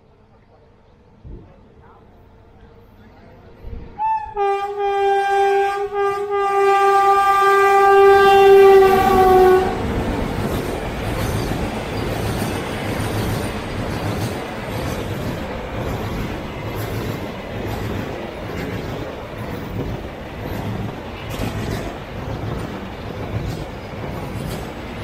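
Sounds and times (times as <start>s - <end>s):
locomotive horn blast: 4.0s - 10.0s.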